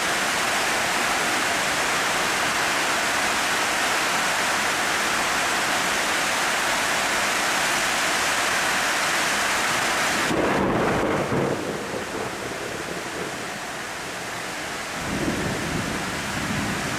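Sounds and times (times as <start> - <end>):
heavy rain pouring: 0.0 - 16.9
thunder rumbling: 10.3 - 14.4, 15.0 - 16.9.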